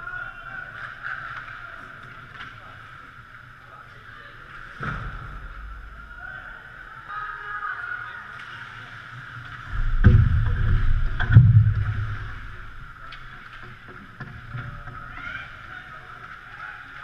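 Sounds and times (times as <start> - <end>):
arena hum: 9.6 - 13.8
heavy knocks on boards: 9.7 - 12.3.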